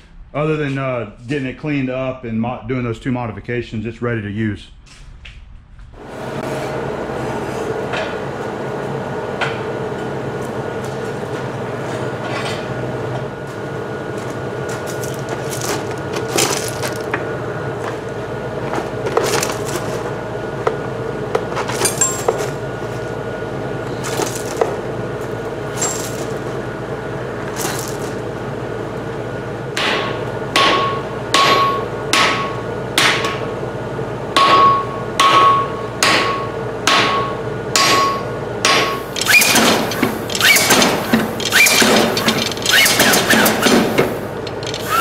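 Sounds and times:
steady hum: 0.0s - 34.8s, 38.0s - 45.0s
hammer striking hot steel: 29.8s - 33.4s, 34.4s - 39.7s
power hammer strikes: 29.8s - 33.4s, 34.4s - 45.0s.

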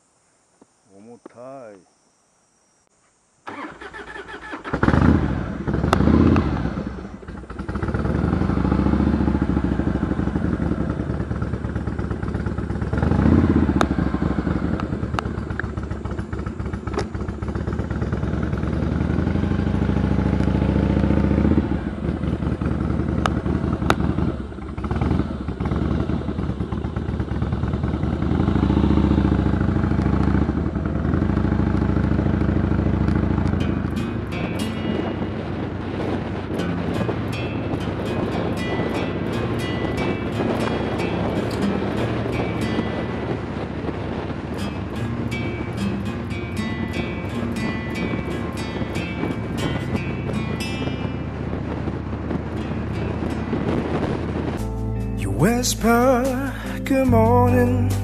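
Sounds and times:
motorcycle engine revving: 3.5s - 58.0s.

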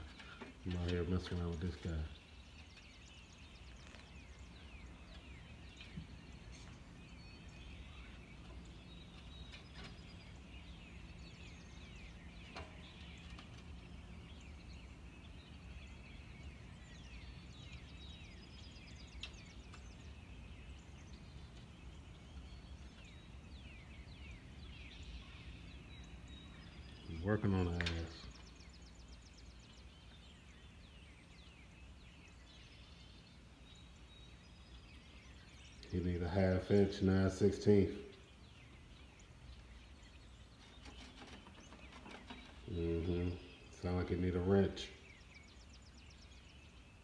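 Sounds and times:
small birds chirping: 0.0s - 47.0s.

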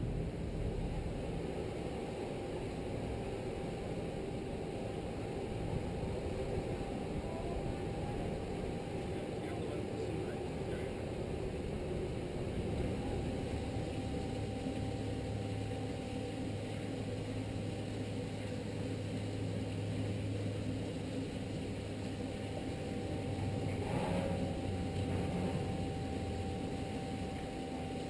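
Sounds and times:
boat engines idling: 0.0s - 28.0s.

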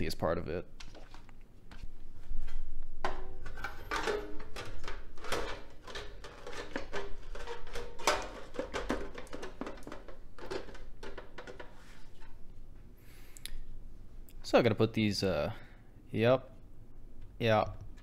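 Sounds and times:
thin metal cover clanking and scraping: 3.1s - 12.4s.

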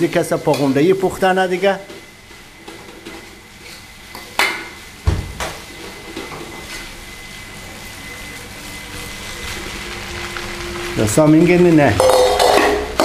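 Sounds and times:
fried rice sizzling: 0.0s - 13.0s
metal cookware clanking on wok: 12.0s - 13.0s.

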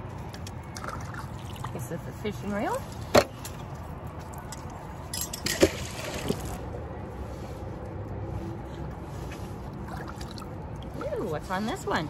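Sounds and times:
water dripping and sloshing: 0.0s - 6.8s, 9.4s - 12.0s
wet rope hauled up: 2.6s - 7.8s.

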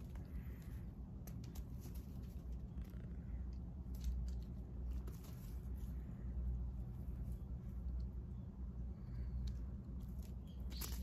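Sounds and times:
cat scuffling on dirt and grass: 0.0s - 8.2s
steady low rumble: 0.0s - 11.0s.

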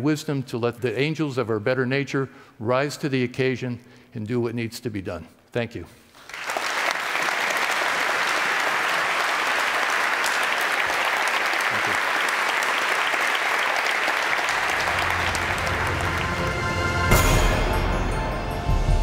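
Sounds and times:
audience applauding: 6.1s - 17.8s.

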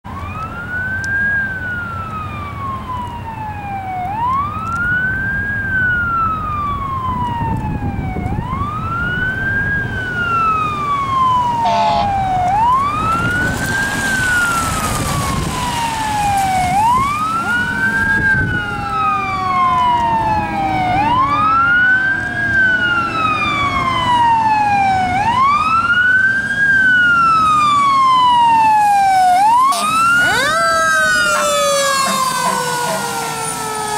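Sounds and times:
fire truck siren wailing: 0.0s - 33.9s
faster siren tone: 0.2s - 33.9s.

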